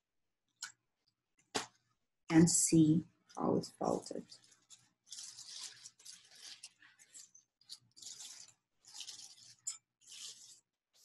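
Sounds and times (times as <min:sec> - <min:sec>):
plastic sheet crackling and rustling: 0:03.2 - 0:11.0.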